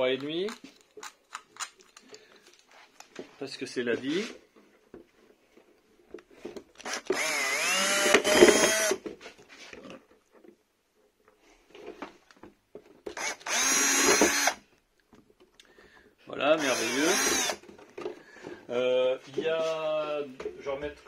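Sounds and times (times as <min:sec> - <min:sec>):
electric drill whining: 0:06.8 - 0:09.0, 0:13.1 - 0:14.6, 0:16.6 - 0:17.7.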